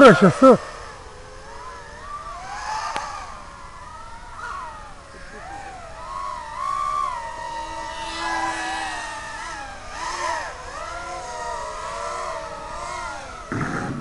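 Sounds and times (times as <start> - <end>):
quadcopter motors whining: 0.0 - 14.0
loud knock of drone crashing: 13.5 - 14.0.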